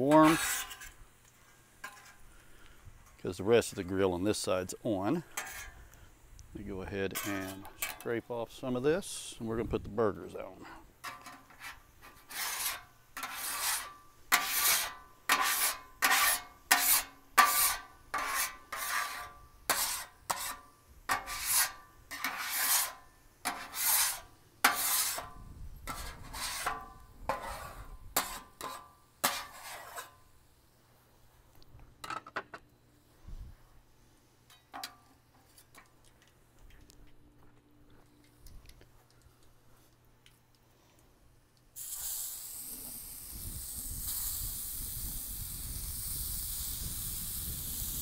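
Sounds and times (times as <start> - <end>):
scraper scraping steel griddle: 0.0 - 2.2, 5.2 - 5.8, 7.1 - 8.0, 10.6 - 30.2.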